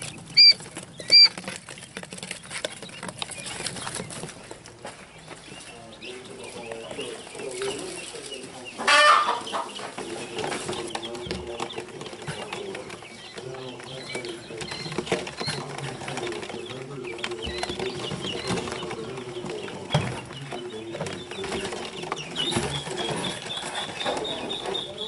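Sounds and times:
quail chicks peeping: 0:00.0 - 0:25.0.

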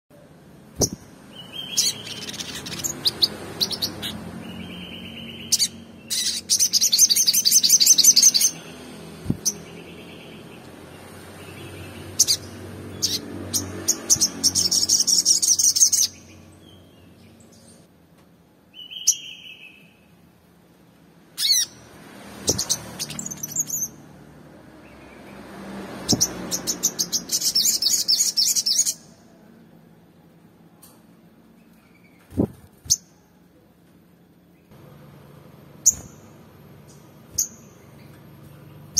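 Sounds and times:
bird chirps and chips: 0:00.8 - 0:08.6, 0:12.1 - 0:17.8, 0:21.4 - 0:21.8, 0:22.4 - 0:24.0, 0:26.0 - 0:29.0, 0:35.8 - 0:38.9
bird singing high trills: 0:00.8 - 0:10.6.

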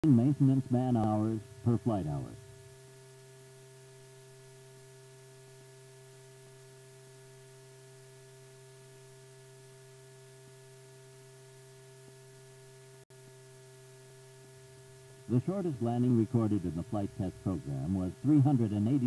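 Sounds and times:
faint electrical hum: 0:00.0 - 0:19.0
even hiss: 0:14.0 - 0:19.0.

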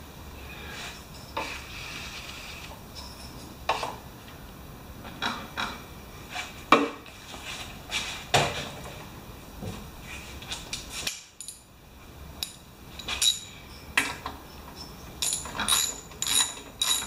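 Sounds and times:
metal tools clinking: 0:02.9 - 0:03.6, 0:11.4 - 0:11.7, 0:12.4 - 0:17.0.

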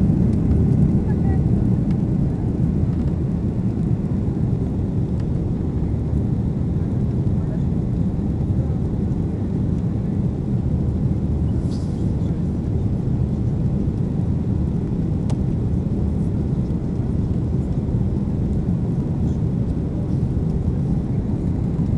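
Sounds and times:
jet engines rumbling: 0:00.0 - 0:21.9.

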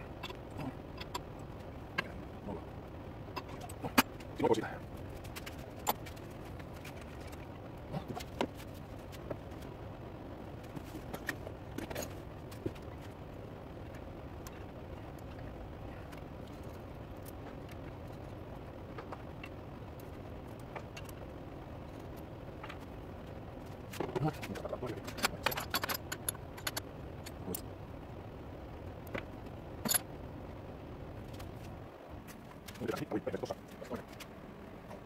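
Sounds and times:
low hum: 0:00.0 - 0:35.0
metal clinks and knocks: 0:25.0 - 0:27.4, 0:29.8 - 0:30.1.

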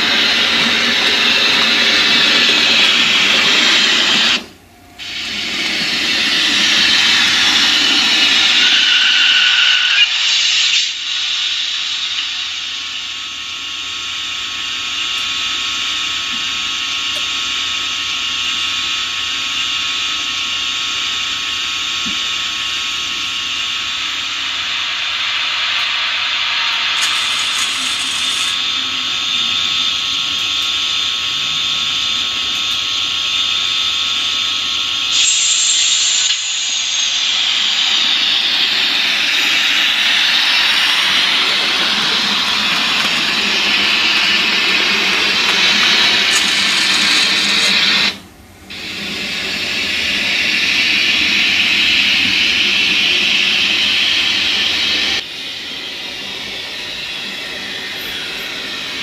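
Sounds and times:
model train running whine: 0:00.0 - 0:59.0.

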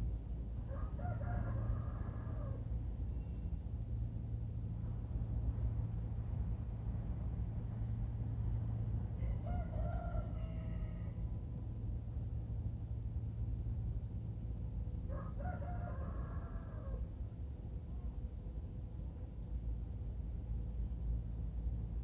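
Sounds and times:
steady low hum: 0:00.0 - 0:22.0
rooster crowing: 0:00.7 - 0:02.6, 0:09.2 - 0:11.5, 0:15.1 - 0:17.1.

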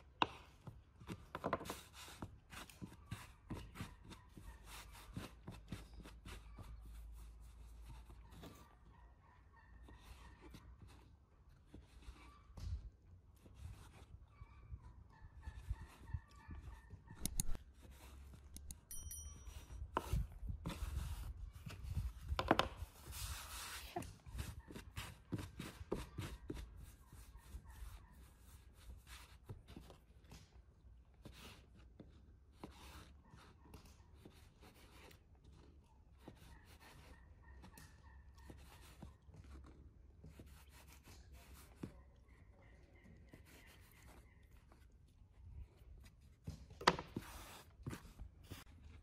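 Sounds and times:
knife cutting dough on wooden board: 0:00.0 - 0:07.1, 0:46.4 - 0:49.0
dough knocking and rubbing: 0:00.0 - 0:08.7, 0:19.4 - 0:30.6, 0:43.2 - 0:49.0.

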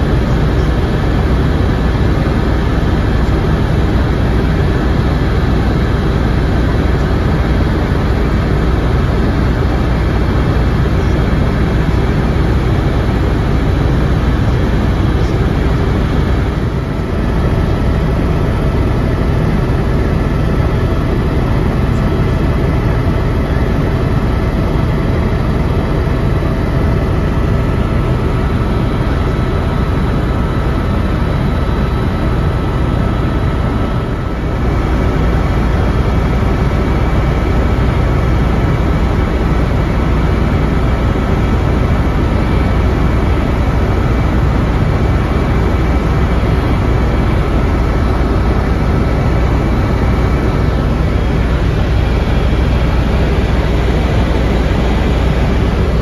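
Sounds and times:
helicopter cabin drone: 0:00.0 - 0:56.0
steady whining tones: 0:00.0 - 0:56.0.

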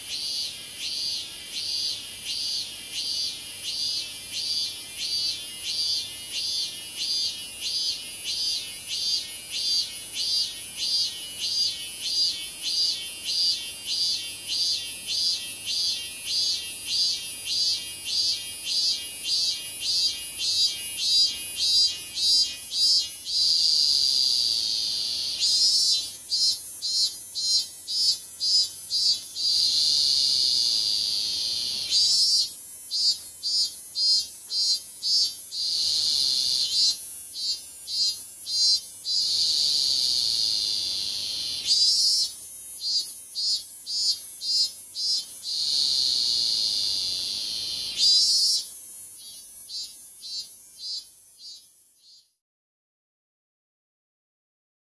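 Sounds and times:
cicada singing: 0:00.0 - 0:52.4.

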